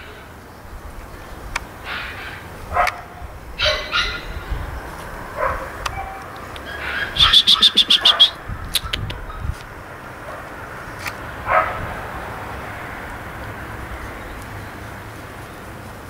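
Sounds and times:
dog barking: 1.9 - 4.4, 5.4 - 8.4, 10.2 - 10.5, 11.5 - 11.9.

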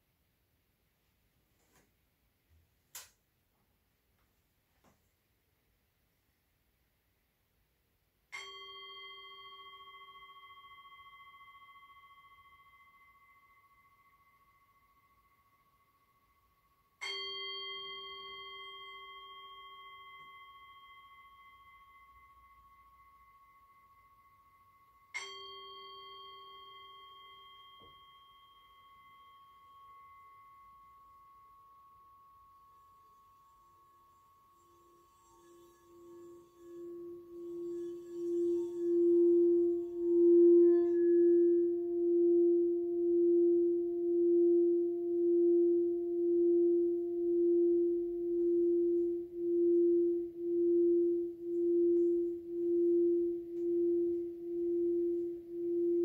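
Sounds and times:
small metal bell struck: 8.3 - 44.7
singing bowl ringing: 8.3 - 56.0.

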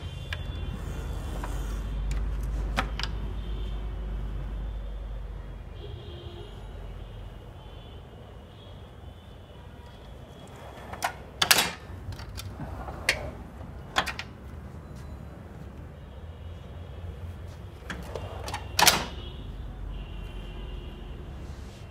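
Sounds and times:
tool drawers clacking and knocking: 10.4 - 14.4, 17.8 - 19.2.

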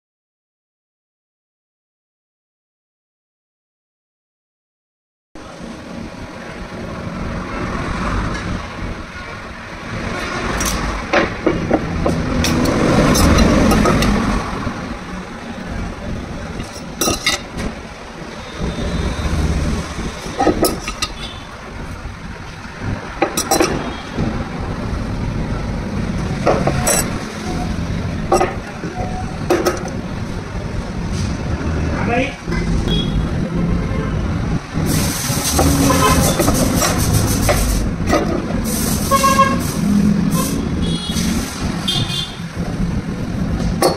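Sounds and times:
metal clinking on wooden workbench: 16.6 - 17.5.

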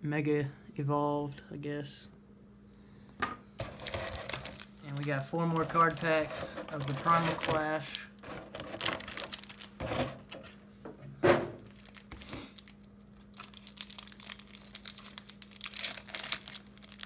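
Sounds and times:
faint steady hum: 0.0 - 17.0
foil pack crinkling and tearing: 3.6 - 10.3, 11.6 - 17.0.

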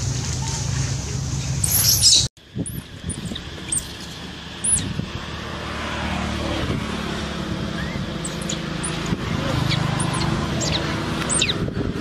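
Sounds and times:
short high-pitched calls: 7.8 - 11.6.

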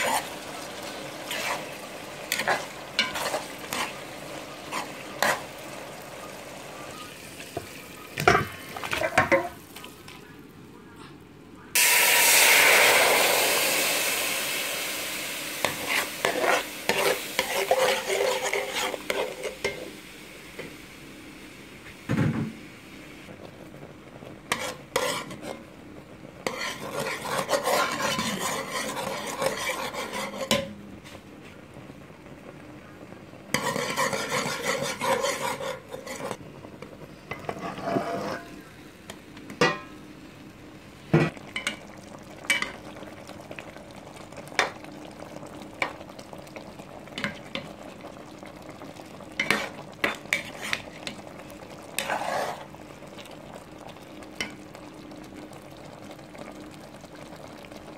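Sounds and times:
metal spoon stirring in pot: 0.0 - 5.8, 15.6 - 19.9, 24.5 - 25.6, 26.4 - 30.7, 33.5 - 36.4, 37.3 - 38.6, 49.4 - 51.3, 51.9 - 52.7
liquid bubbling in pot: 0.0 - 19.9, 23.3 - 57.9.

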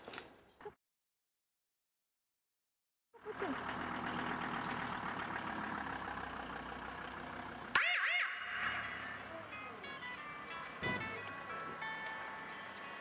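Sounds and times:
vehicle engine idling: 3.2 - 13.0.

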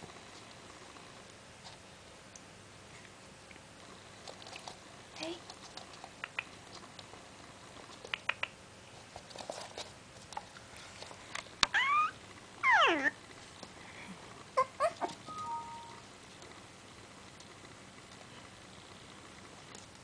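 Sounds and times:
puppy whining: 11.6 - 13.2, 14.5 - 16.0
puppy squeaking: 11.7 - 13.2, 14.6 - 15.8
puppy yawning: 11.7 - 13.2.

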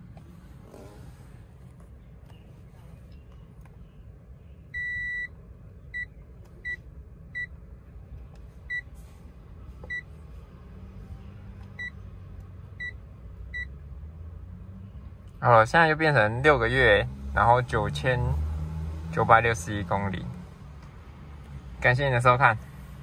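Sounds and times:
low steady hum: 0.0 - 15.5.

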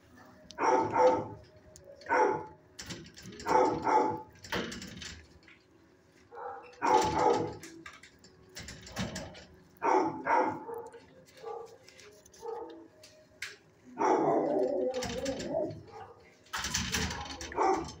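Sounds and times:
dog barking: 0.6 - 1.4, 2.1 - 2.6, 3.4 - 4.3, 6.3 - 7.6, 9.8 - 11.8, 12.4 - 12.8, 14.0 - 14.8, 15.8 - 16.3, 17.1 - 18.0.

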